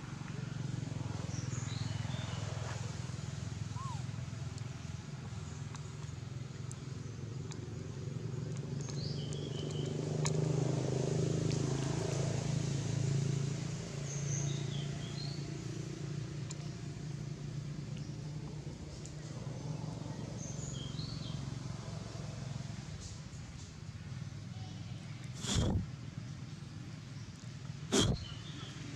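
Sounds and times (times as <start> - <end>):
low engine rumble: 0.0 - 28.9
bird chirping: 8.8 - 10.0, 27.2 - 28.9.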